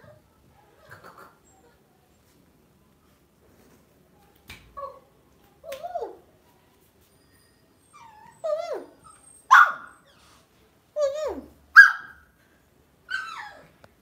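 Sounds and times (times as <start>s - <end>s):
puppy whining: 7.0s - 10.4s, 13.1s - 13.8s
puppy yipping: 7.1s - 10.2s, 11.0s - 12.3s, 13.1s - 13.7s.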